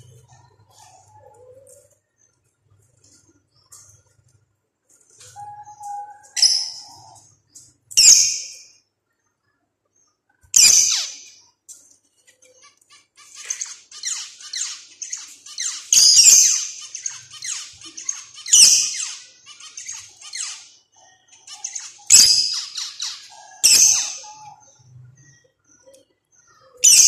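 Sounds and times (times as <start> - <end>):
finch chirping: 10.6 - 11.3, 12.9 - 27.0.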